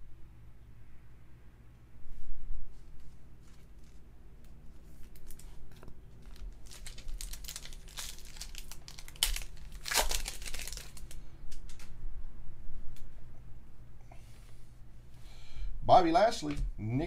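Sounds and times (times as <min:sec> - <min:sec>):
foil wrapper tearing open: 0:05.0 - 0:11.9.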